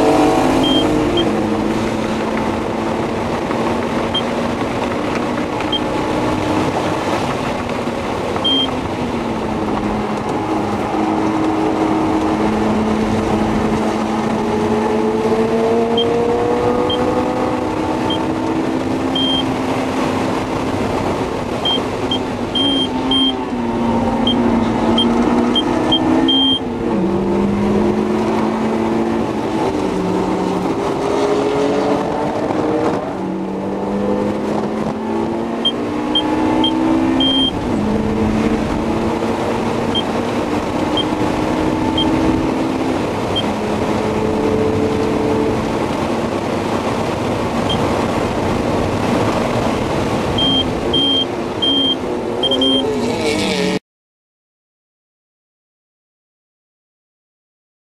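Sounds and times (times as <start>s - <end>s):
car engine accelerating: 0.0s - 53.8s
road and wind noise: 0.0s - 53.8s
short high-pitched beeps: 0.6s - 1.4s, 8.4s - 8.7s, 19.2s - 19.5s, 21.6s - 23.4s, 24.2s - 24.4s, 25.0s - 26.6s, 35.6s - 37.6s, 50.4s - 52.9s.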